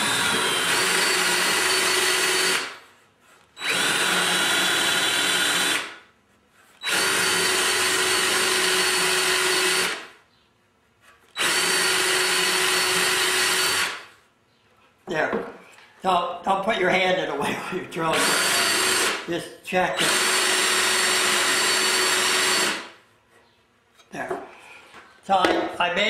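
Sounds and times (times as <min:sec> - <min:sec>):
cordless drill boring into wood: 0:00.0 - 0:02.8, 0:03.6 - 0:06.0, 0:06.8 - 0:10.1, 0:11.4 - 0:14.1, 0:18.1 - 0:19.3, 0:20.0 - 0:22.9.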